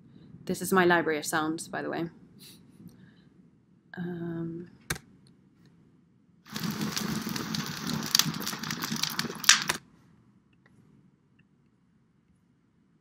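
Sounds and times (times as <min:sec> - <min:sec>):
wood fire crackling: 0:06.5 - 0:09.8.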